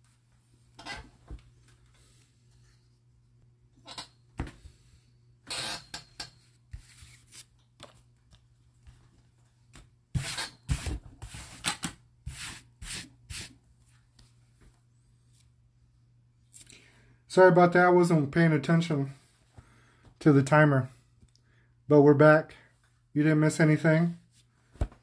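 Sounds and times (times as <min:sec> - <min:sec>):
cards sliding on tabletop: 0:06.7 - 0:07.5, 0:10.2 - 0:13.5
paper cards rubbing and sliding: 0:06.7 - 0:07.5, 0:10.2 - 0:13.5.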